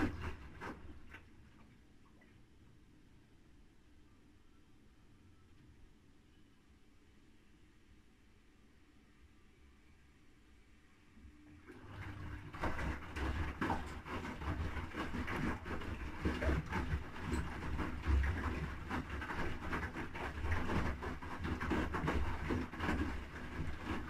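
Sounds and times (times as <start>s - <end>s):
washing machine motor hum: 0.0s - 1.8s, 11.2s - 24.0s
laundry sloshing in water: 11.7s - 24.0s.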